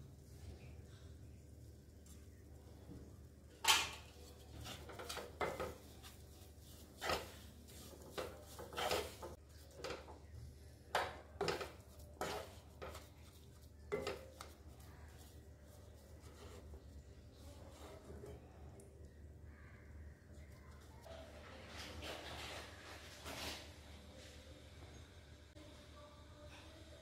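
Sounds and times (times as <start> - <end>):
wooden spatula scraping pan: 4.1 - 10.3, 11.0 - 16.8.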